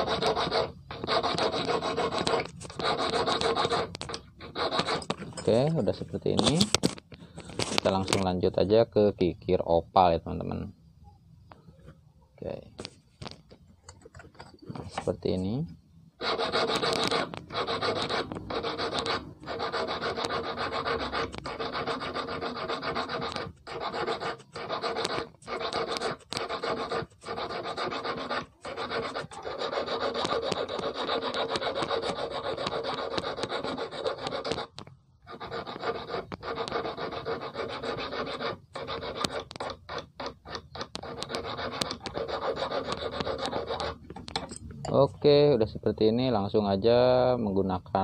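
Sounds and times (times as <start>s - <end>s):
hand file rasping on metal: 0.0s - 6.6s, 16.2s - 44.5s.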